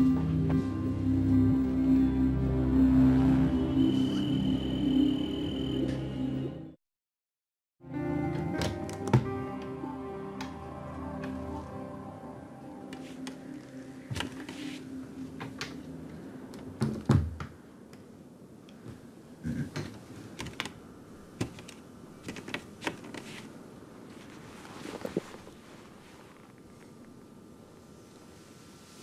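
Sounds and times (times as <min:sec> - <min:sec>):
low held music: 0:00.0 - 0:06.8, 0:07.8 - 0:17.1.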